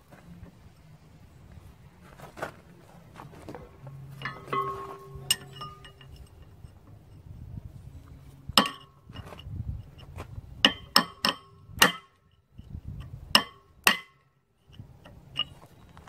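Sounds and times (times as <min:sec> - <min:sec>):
hammer striking steel punch: 0:04.2 - 0:06.0, 0:08.6 - 0:08.9, 0:10.6 - 0:12.2, 0:13.4 - 0:14.2.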